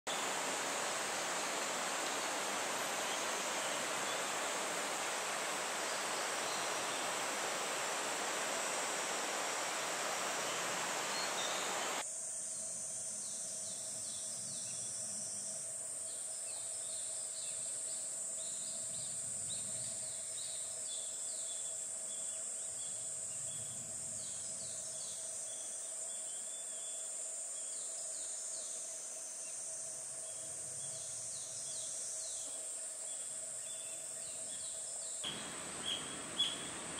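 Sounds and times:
rushing water: 0.0 - 12.0, 35.2 - 36.9
insect drone: 0.1 - 36.9
bird calling falling notes: 35.3 - 36.9.

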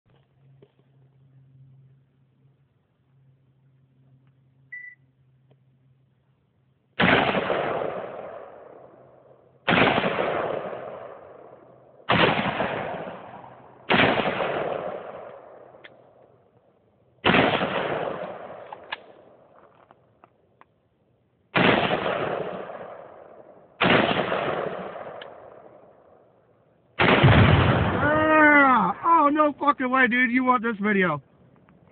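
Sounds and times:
rifle shots with echo: 7.0 - 15.8, 17.2 - 19.5, 21.5 - 26.2, 27.0 - 28.3.

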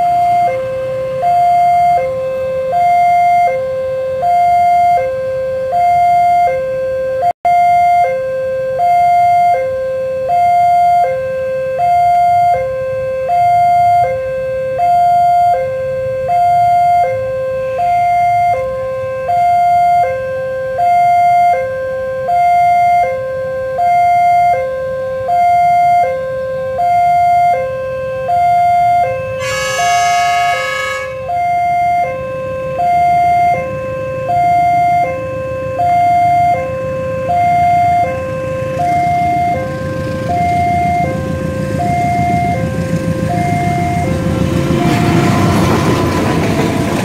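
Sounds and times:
level crossing two-tone alarm: 0.0 - 44.2
train horn: 28.2 - 32.6.

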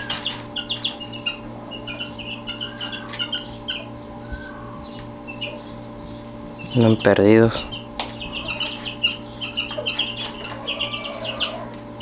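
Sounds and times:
chicks peeping: 0.0 - 12.0
steady low hum: 0.0 - 12.0.

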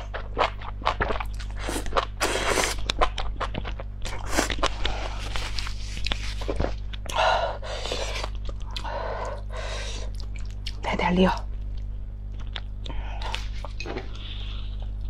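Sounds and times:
slurping: 1.5 - 2.9
chewing with wet mouth clicks: 10.0 - 10.8.

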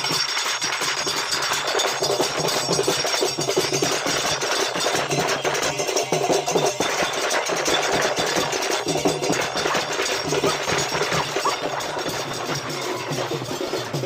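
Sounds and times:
fast dense drumming music: 0.0 - 14.0.

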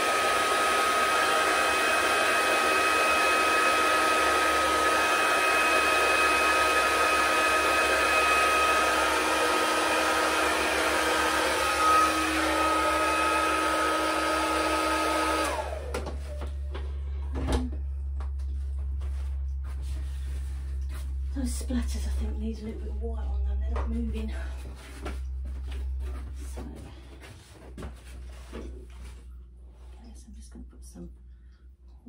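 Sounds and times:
hair dryer whining: 0.0 - 18.4.

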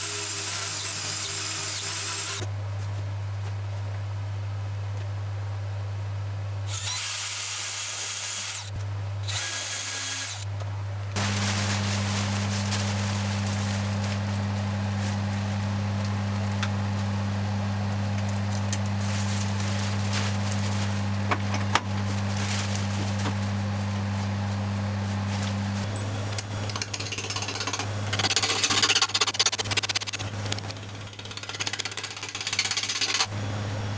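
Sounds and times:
steady low hum: 10.5 - 33.9.

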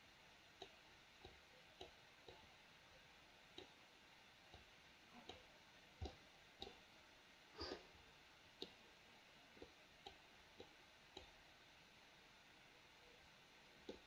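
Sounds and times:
faint mouse clicks: 3.5 - 3.8, 4.5 - 6.8, 8.6 - 8.8, 9.6 - 11.4.

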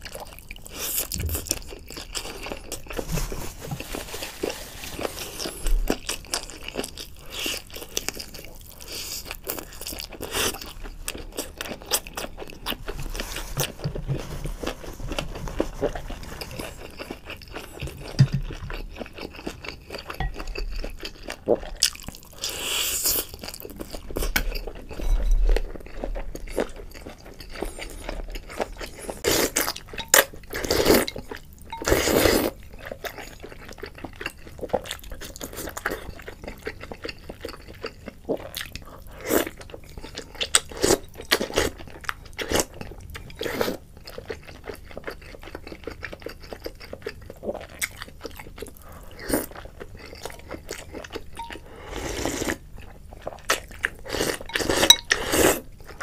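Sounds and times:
chewing and biting: 14.6 - 56.0
slurping noodles and broth: 51.8 - 52.6, 54.1 - 55.6.

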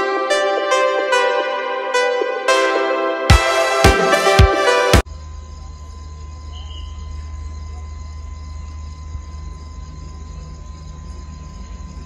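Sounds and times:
crickets chirping: 5.0 - 12.0
faint steady tone: 5.0 - 12.0.

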